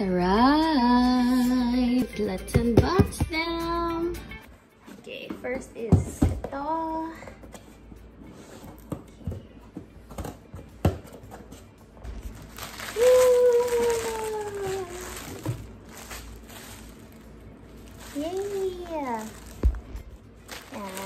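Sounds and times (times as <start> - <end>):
plastic packaging crinkling: 12.3 - 21.0.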